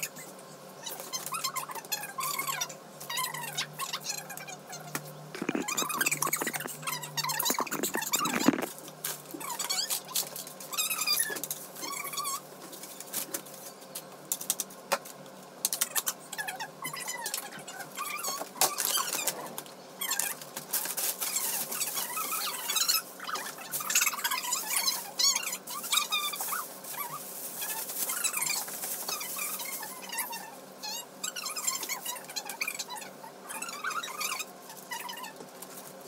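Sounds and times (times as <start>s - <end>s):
dog whining: 5.4s - 8.7s
plastic bags crackling: 5.4s - 9.3s, 20.1s - 30.3s.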